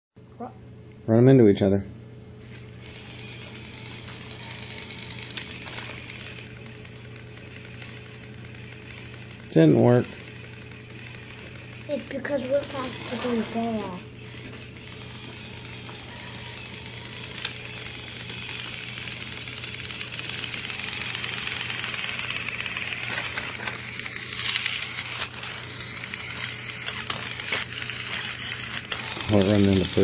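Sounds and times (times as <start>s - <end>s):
toy train motors whirring: 2.4s - 30.0s
sharp clicks: 2.6s - 9.5s.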